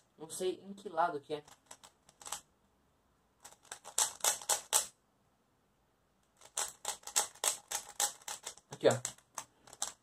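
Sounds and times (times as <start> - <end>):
twisty puzzle layers clicking: 1.4 - 2.4, 3.4 - 4.9, 6.3 - 10.0.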